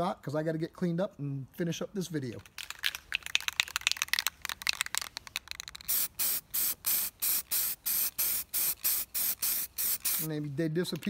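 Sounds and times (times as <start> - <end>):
spray can ball rattling: 2.3 - 11.0
spray can hissing: 2.9 - 10.4.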